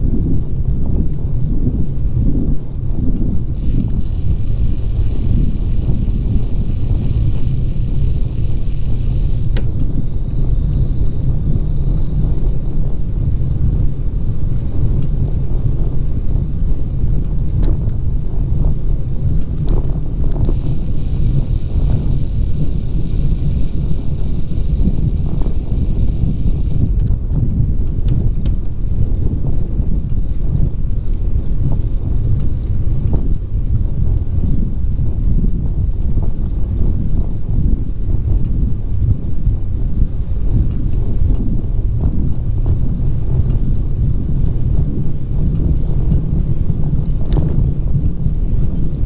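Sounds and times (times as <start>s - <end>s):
low rumble: 0.0s - 49.0s
wind buffeting microphone: 0.0s - 49.0s.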